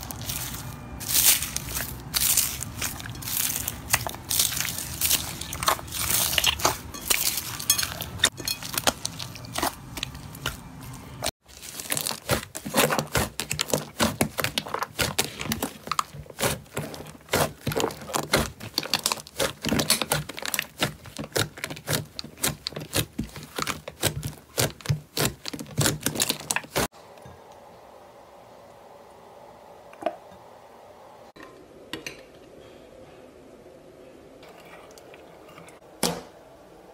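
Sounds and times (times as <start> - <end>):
slime crackling and popping: 0.0 - 10.6, 11.5 - 26.9.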